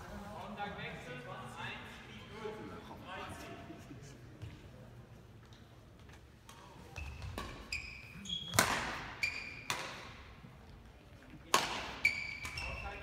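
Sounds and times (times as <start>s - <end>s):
rackets hitting shuttlecock: 6.4s - 7.7s, 8.5s - 10.2s, 11.4s - 12.8s
shoe squeaks on court floor: 6.9s - 9.8s, 12.0s - 13.0s.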